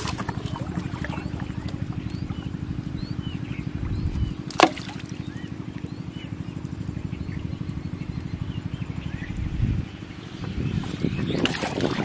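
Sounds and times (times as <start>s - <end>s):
small birds chirping: 0.2s - 12.0s
small engine thudding: 3.9s - 6.0s.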